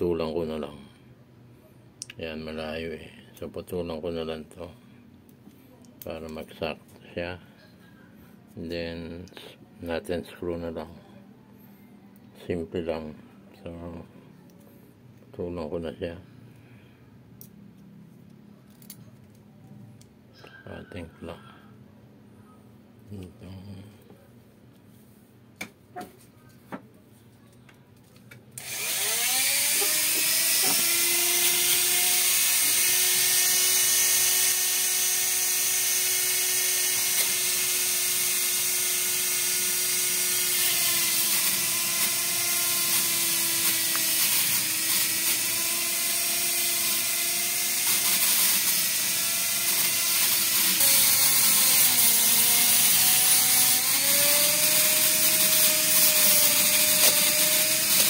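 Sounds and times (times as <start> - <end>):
cut-off disc grinding steel: 28.6 - 58.0
rotary tool whining: 28.6 - 58.0.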